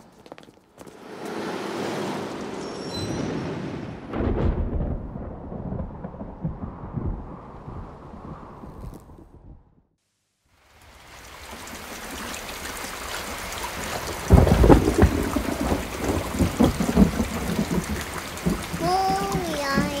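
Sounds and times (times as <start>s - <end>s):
thunderclap rumbling: 3.6s - 9.9s, 14.2s - 20.0s
rain falling: 10.5s - 20.0s.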